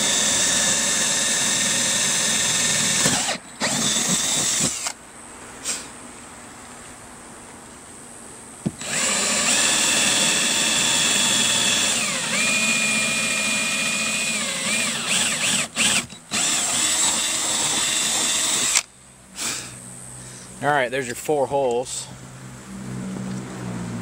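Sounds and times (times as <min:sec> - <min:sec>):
power drill boring: 0:00.0 - 0:05.0, 0:08.8 - 0:18.9.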